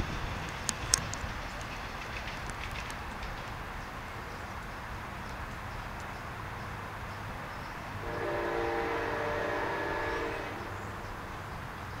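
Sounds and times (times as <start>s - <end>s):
locomotive air horn blast: 8.0s - 10.8s.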